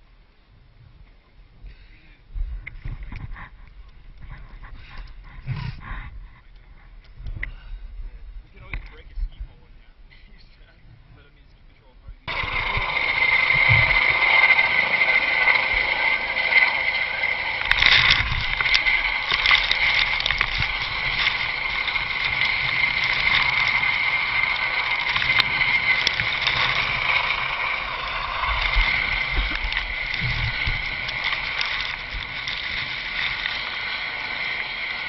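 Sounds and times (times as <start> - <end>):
wind on microphone: 0.6 - 10.1, 12.0 - 35.0
rotor wash buffeting: 12.1 - 35.0
helicopter turbine whine: 12.3 - 35.0.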